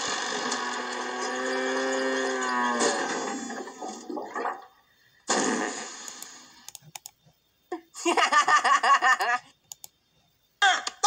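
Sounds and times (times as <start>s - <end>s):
mouse clicks: 6.2s - 7.2s, 9.6s - 10.0s.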